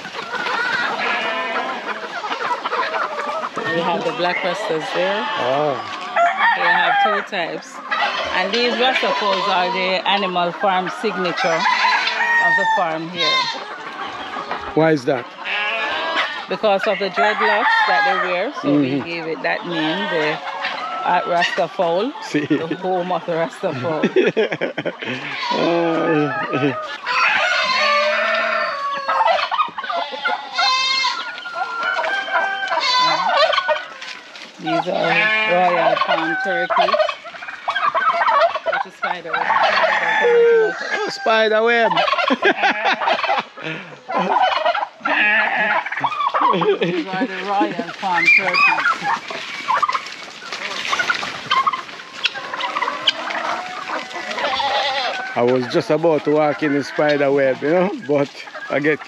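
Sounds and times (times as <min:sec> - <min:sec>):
chickens clucking: 0:00.0 - 0:59.0
turkeys gobbling: 0:00.0 - 0:59.0
rooster crowing: 0:06.1 - 0:09.7, 0:11.1 - 0:13.6, 0:26.3 - 0:33.9, 0:39.4 - 0:41.5.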